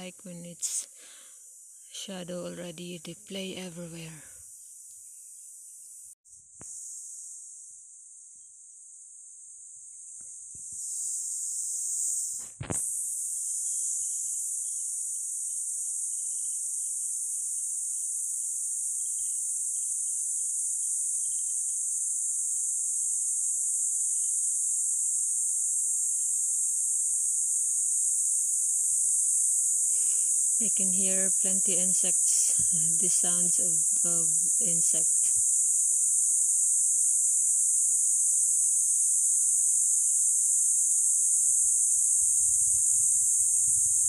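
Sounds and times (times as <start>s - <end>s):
insect chirps: 0.0s - 44.0s
insects buzzing: 0.0s - 44.0s.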